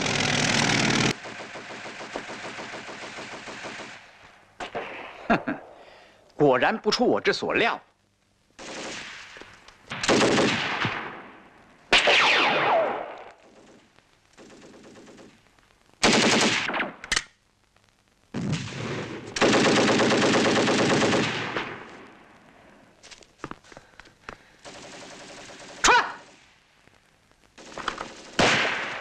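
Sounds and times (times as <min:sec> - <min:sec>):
automatic gunfire bursts: 0:09.9 - 0:10.8, 0:16.0 - 0:17.0, 0:19.4 - 0:21.8, 0:24.6 - 0:26.4, 0:27.6 - 0:29.0.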